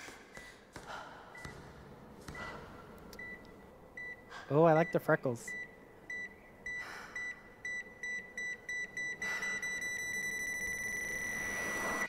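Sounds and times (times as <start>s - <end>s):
heart-rate monitor beeping: 1.2s - 12.0s
long flatline tone: 4.0s - 12.0s.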